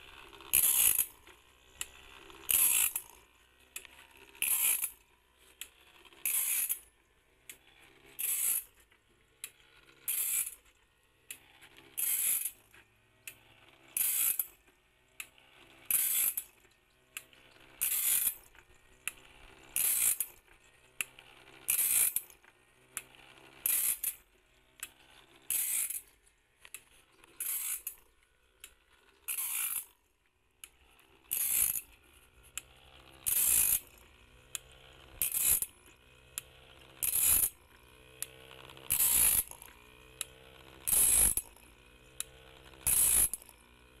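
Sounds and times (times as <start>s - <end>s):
grinding wheel bursts: 0.0s - 6.9s, 7.5s - 8.8s, 11.3s - 12.6s, 15.2s - 16.6s, 17.2s - 22.4s, 23.0s - 30.0s, 30.7s - 44.0s.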